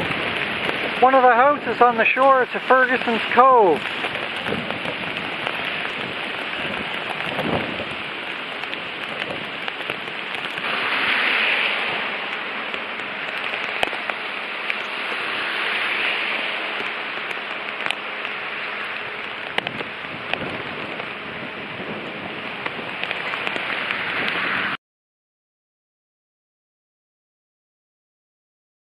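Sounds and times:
driving rain: 0.0s - 24.8s
hurricane wind: 0.0s - 24.8s.

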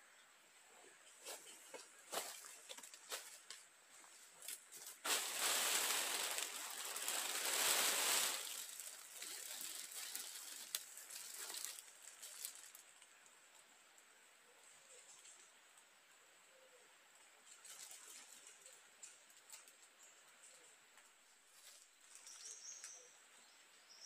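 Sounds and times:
footsteps crunching dry leaves: 4.4s - 12.8s.

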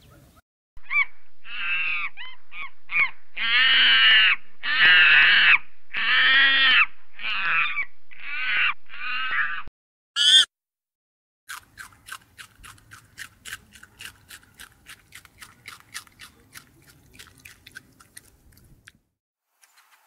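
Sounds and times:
harsh animal calls: 0.8s - 10.5s.

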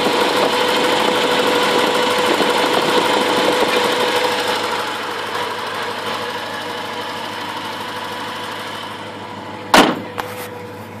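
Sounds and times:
car engine idling: 0.0s - 11.0s
loud thump: 9.7s - 10.2s.

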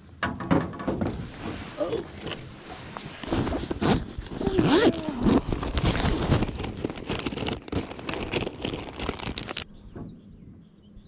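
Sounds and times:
hands rummaging in a bag: 1.4s - 9.6s
plastic packages rustling: 3.0s - 9.6s.

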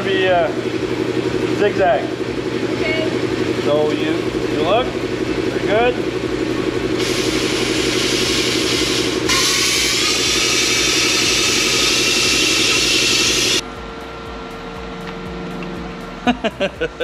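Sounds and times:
machine hum: 0.0s - 17.0s
plasma arc hissing: 7.0s - 13.6s.

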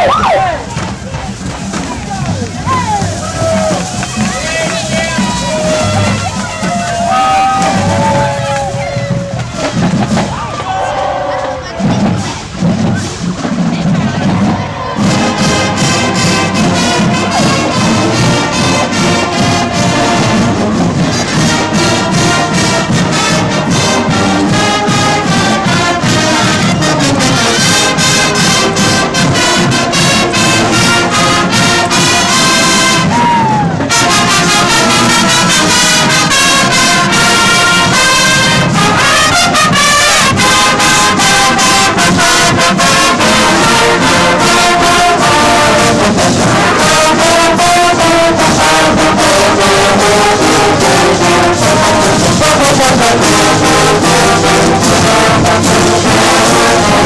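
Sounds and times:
marching band brass: 0.0s - 57.0s
steady drum beat: 0.0s - 57.0s.

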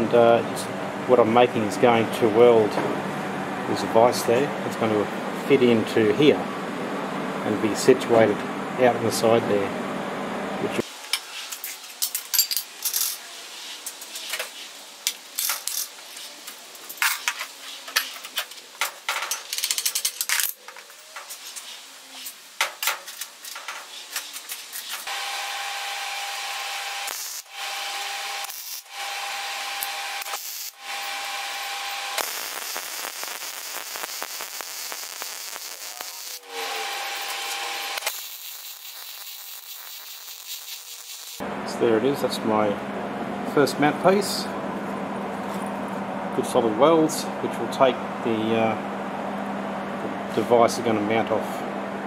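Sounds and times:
steel pieces clanking: 11.1s - 13.2s, 15.1s - 16.0s, 16.8s - 21.7s
welder buzzing: 24.9s - 41.5s.

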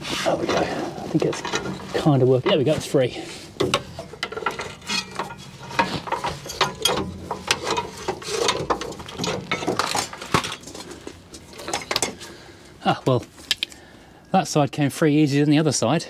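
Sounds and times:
metallic clicks and clanks: 0.4s - 12.4s.

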